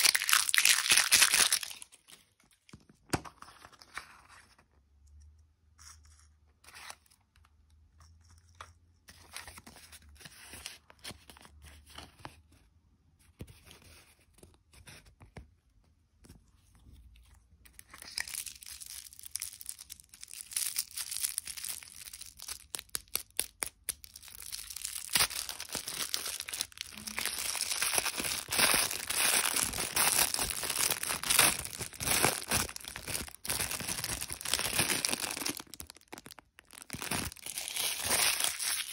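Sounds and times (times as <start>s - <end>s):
plastic wrapper crinkling and tearing: 0.0s - 2.8s, 17.7s - 38.9s.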